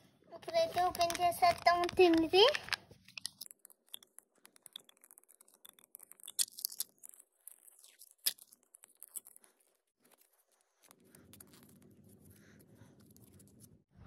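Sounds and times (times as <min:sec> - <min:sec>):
sharp plastic ticks: 0:00.5 - 0:07.1
foil seal crinkling: 0:00.5 - 0:10.4.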